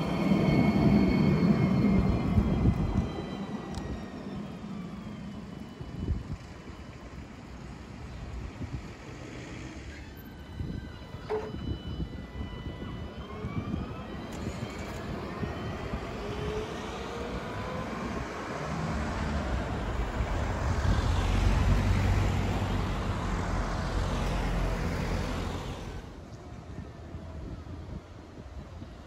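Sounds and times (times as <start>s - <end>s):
tram motor whine: 0.0s - 28.9s
road vehicle engine passing: 15.8s - 26.2s.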